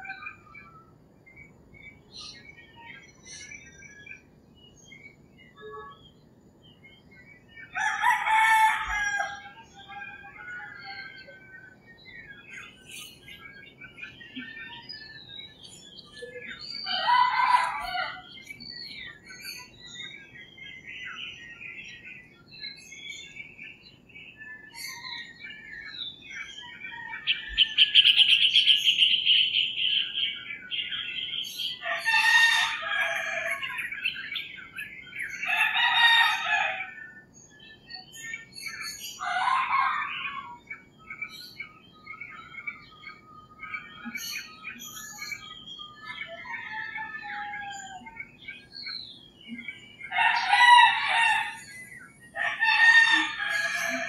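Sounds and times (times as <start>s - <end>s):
small birds chirping: 0.0s - 54.0s
rooster crowing: 7.8s - 11.3s, 16.8s - 18.4s, 31.8s - 33.9s, 35.4s - 37.0s, 46.2s - 48.2s, 50.1s - 51.8s, 52.4s - 54.0s.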